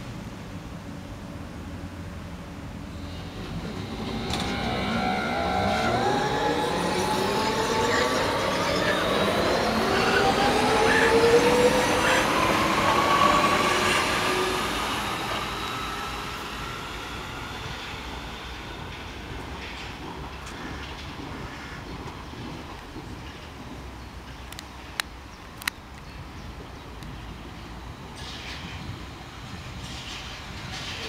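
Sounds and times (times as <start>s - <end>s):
electric train motors whining: 2.9s - 19.8s.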